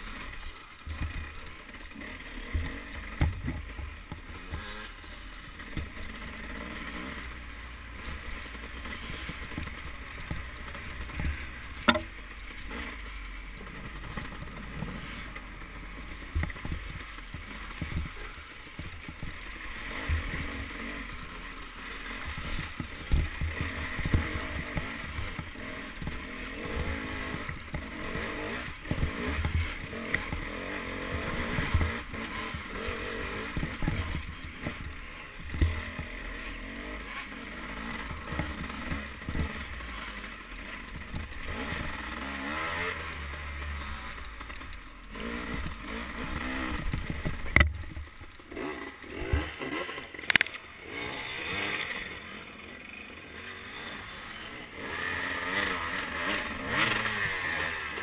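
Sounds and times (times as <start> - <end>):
muffled dirt bike engine: 0.0 - 58.0
bike thumping over bumps: 2.4 - 4.7, 8.9 - 12.2, 16.1 - 19.4, 22.2 - 36.4.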